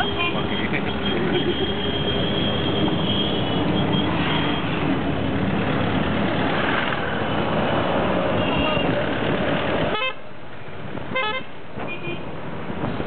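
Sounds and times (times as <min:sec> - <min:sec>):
auto-rickshaw engine running: 0:00.0 - 0:10.1
road and wind noise: 0:00.0 - 0:13.0.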